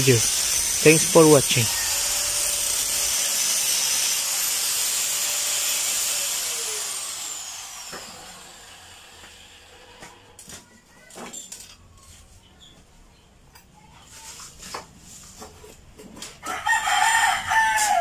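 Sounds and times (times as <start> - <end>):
small motor whirring: 0.0 - 10.4.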